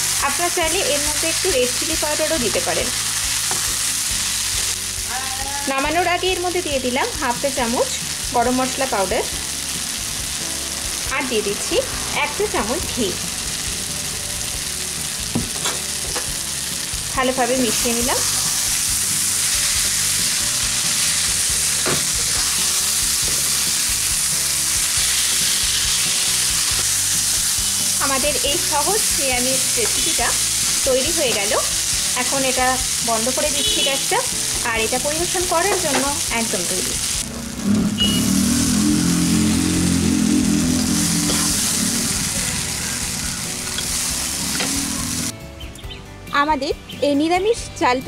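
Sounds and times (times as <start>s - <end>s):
food sizzling in a pan: 0.0s - 45.3s
spatula scraping a pan: 41.3s - 41.8s.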